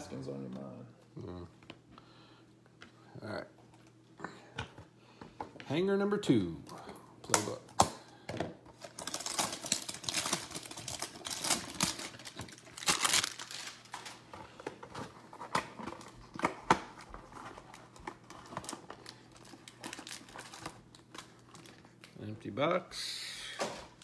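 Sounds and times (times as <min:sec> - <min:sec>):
plastic wrap crinkling and tearing: 0:08.8 - 0:14.3, 0:14.9 - 0:22.2.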